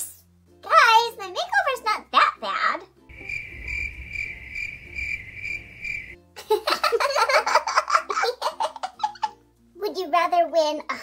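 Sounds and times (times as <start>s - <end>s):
crickets chirping sound effect: 3.1s - 6.2s.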